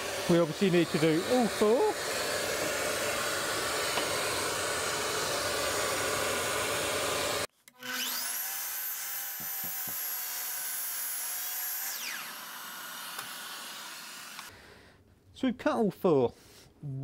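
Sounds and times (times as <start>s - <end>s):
mitre saw cutting wood: 0.0s - 14.5s.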